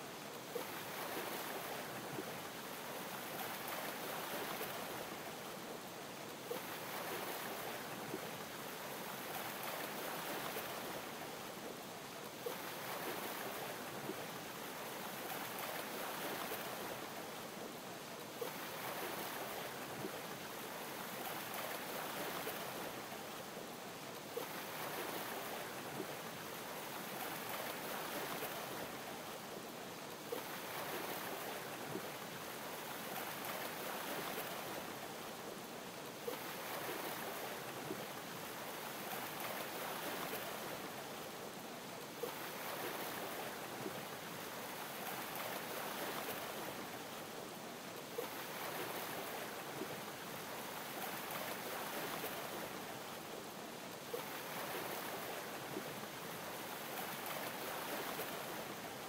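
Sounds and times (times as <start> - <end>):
gentle waves lapping: 0.0 - 59.0.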